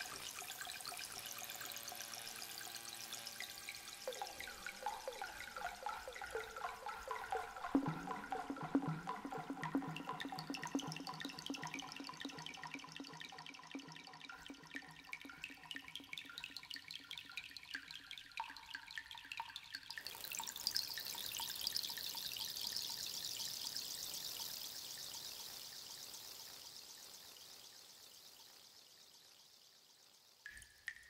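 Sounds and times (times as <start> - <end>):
steady hiss: 0.0 - 6.6
water dripping: 0.0 - 31.0.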